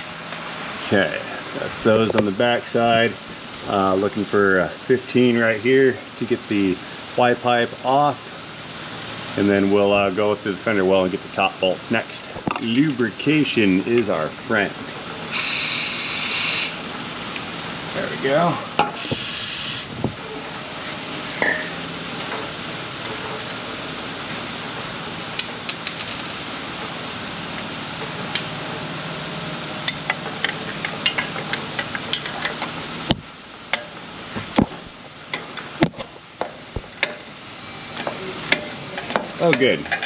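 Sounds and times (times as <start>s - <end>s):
aerosol spray hissing: 15.4s - 16.8s, 19.0s - 19.9s.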